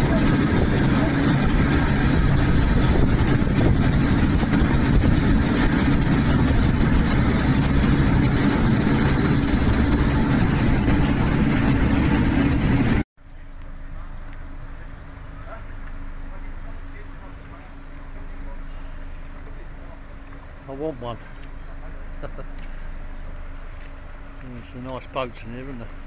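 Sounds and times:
boat engine running: 0:00.0 - 0:13.0
rush of wind and water: 0:00.0 - 0:13.0.

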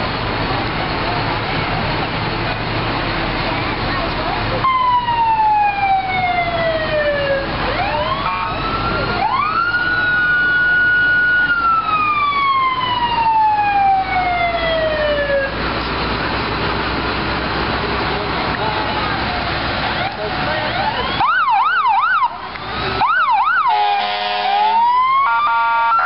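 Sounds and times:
siren wailing: 0:04.6 - 0:15.6, 0:20.0 - 0:26.0.

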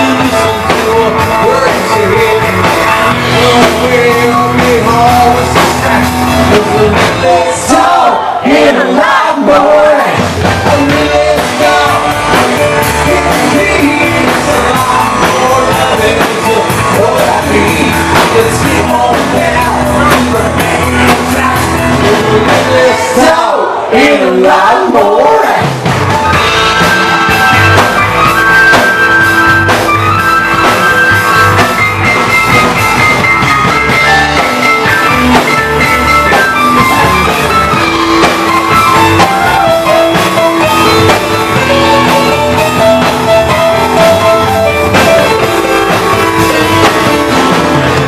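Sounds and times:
electric guitar: 0:00.0 - 0:23.9, 0:25.6 - 0:48.0
drum kit: 0:00.0 - 0:48.0
electric keyboard: 0:25.6 - 0:48.0.

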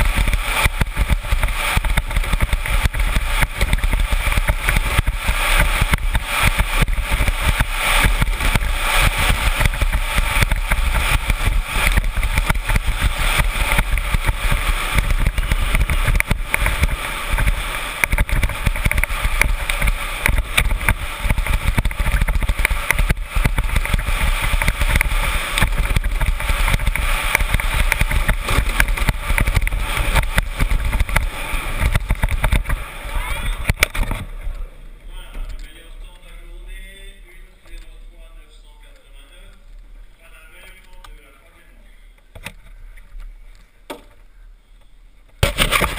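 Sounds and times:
wind on microphone: 0:00.0 - 0:34.6
wheels rumbling on asphalt: 0:00.0 - 0:41.3, 0:45.3 - 0:45.9.

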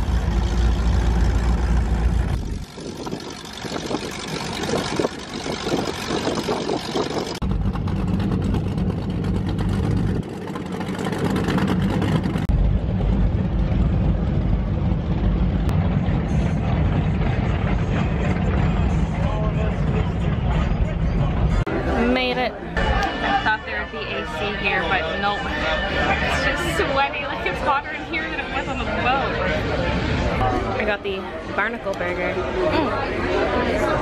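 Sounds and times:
water noise: 0:00.0 - 0:19.8
motorboat engine drone: 0:00.0 - 0:21.6
wind rumble on microphone: 0:01.5 - 0:21.7.

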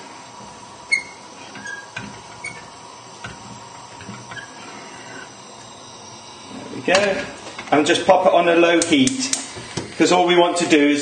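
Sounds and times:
simmering pan hissing: 0:00.0 - 0:11.0.

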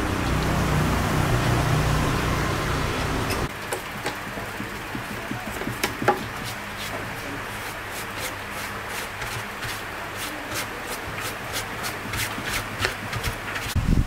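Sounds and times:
small tools clicking and tapping: 0:03.3 - 0:06.3.

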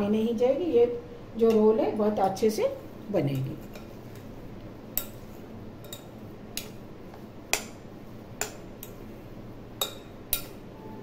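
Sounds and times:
fork tapping a glass bowl: 0:09.8 - 0:10.6.

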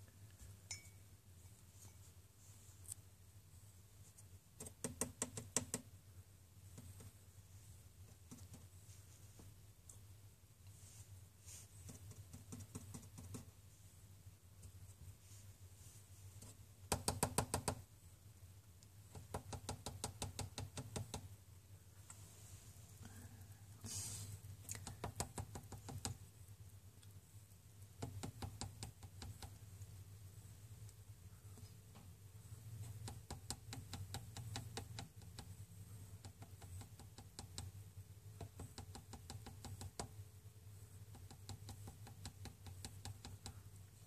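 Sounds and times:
faint low hum: 0:00.0 - 0:44.0.

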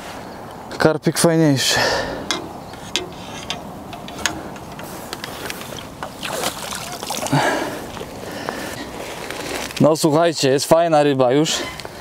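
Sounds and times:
water splashing and sloshing: 0:03.0 - 0:09.4.

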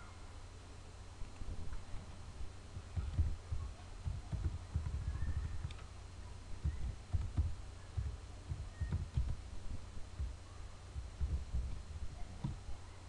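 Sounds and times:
faint hum: 0:00.0 - 0:13.0
keyboard typing thumps: 0:02.8 - 0:05.9, 0:06.6 - 0:09.5, 0:11.0 - 0:11.8.

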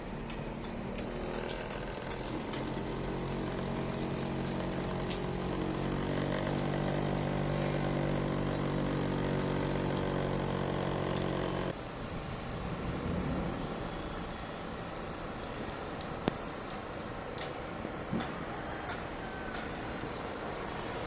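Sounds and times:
small motor pump humming: 0:00.0 - 0:11.8.

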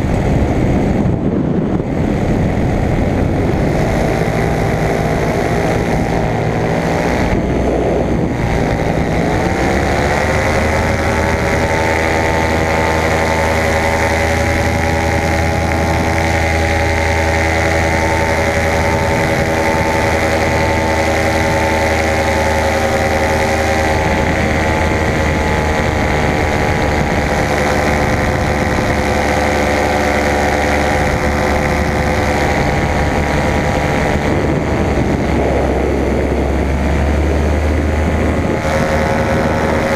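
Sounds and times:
paramotor engine and propeller: 0:00.0 - 0:39.9.

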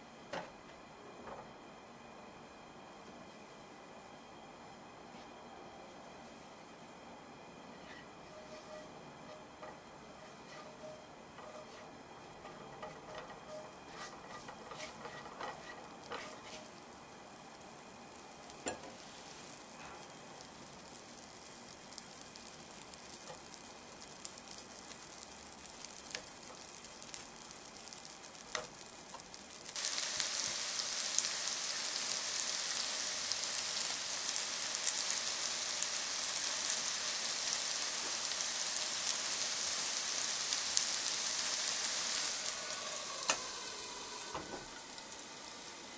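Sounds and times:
loud crackling fry: 0:07.8 - 0:45.9
butter sizzling in frying pan: 0:09.7 - 0:45.9.

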